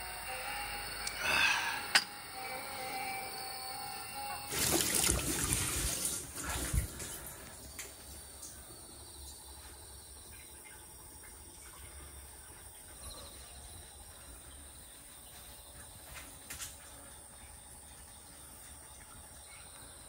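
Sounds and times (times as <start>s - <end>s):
insects trilling: 0.0s - 20.0s
low steady hum: 0.0s - 20.0s.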